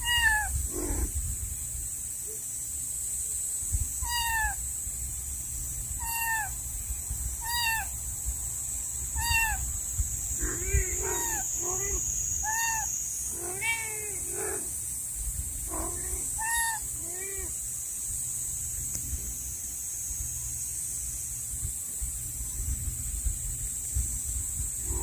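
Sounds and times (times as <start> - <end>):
kitten meowing: 0.0 - 1.0, 4.0 - 4.6, 6.0 - 6.6, 7.4 - 7.9, 9.2 - 9.6, 11.1 - 11.4, 12.4 - 14.2, 16.0 - 17.5
adult cat meowing: 0.0 - 1.1, 4.0 - 4.6, 6.0 - 6.6, 7.4 - 7.9, 9.2 - 9.6, 10.4 - 14.6, 15.7 - 17.5.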